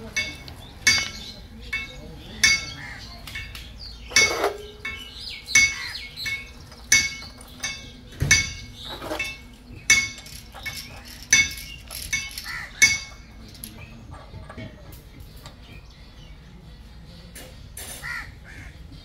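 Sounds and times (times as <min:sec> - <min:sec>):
hammer striking metal: 0:00.0 - 0:13.4
light metal clinks: 0:00.0 - 0:14.8.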